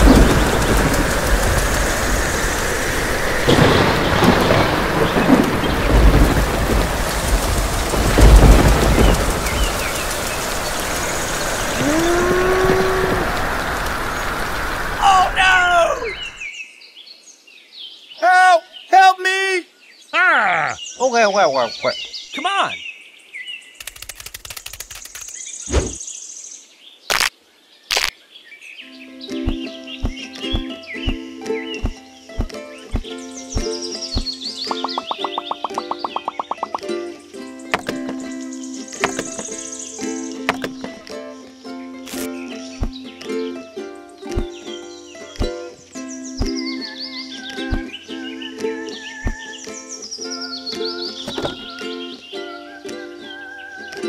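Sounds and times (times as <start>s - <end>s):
deep rolls of thunder: 0.0s - 13.9s
heavy rain: 0.0s - 16.4s
fast clicking rattle: 23.8s - 25.4s
faint bird chirping: 24.9s - 40.4s.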